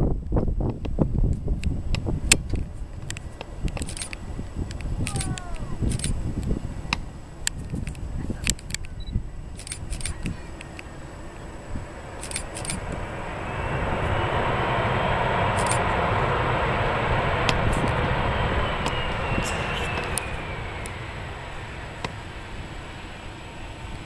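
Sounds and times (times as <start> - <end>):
jet engines roaring: 0.0 - 24.0
sharp clicks: 2.3 - 10.9, 12.2 - 12.9.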